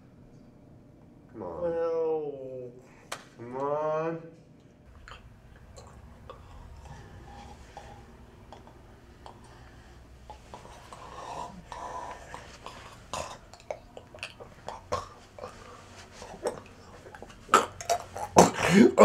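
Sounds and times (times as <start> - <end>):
man making throat noises: 4.9 - 19.0.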